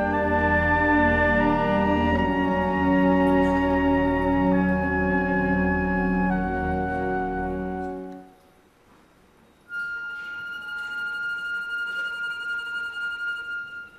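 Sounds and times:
orchestra holding a chord: 0.0s - 8.3s.

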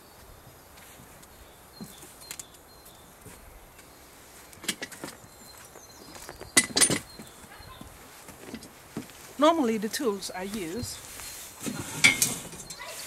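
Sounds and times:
faint outdoor background: 0.0s - 13.0s
handling clicks and rustles: 0.7s - 9.4s.

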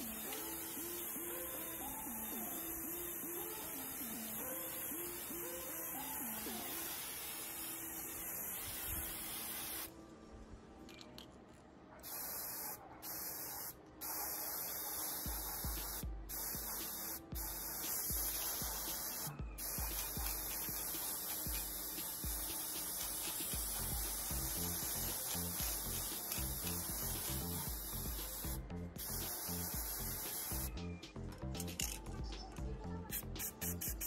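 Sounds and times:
spray paint can hissing: 0.0s - 9.9s, 12.0s - 30.8s, 33.0s - 34.0s.

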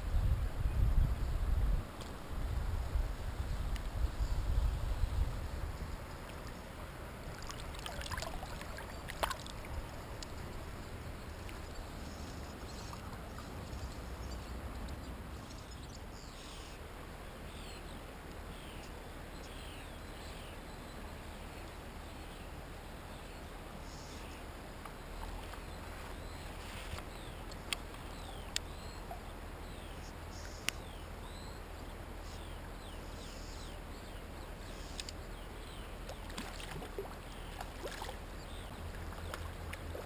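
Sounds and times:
low rush of river water: 0.0s - 40.0s
water splashes and knocks: 7.3s - 10.0s, 36.1s - 38.2s, 38.9s - 40.0s.

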